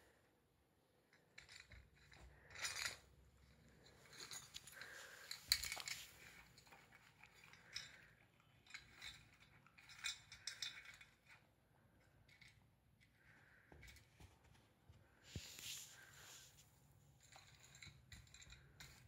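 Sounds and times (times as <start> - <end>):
balls clinking in metal tin: 1.3 - 11.4.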